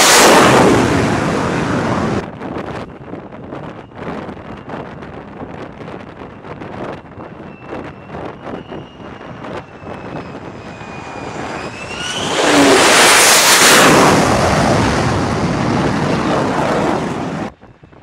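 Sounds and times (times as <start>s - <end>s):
jet engine roaring: 0.0s - 17.5s.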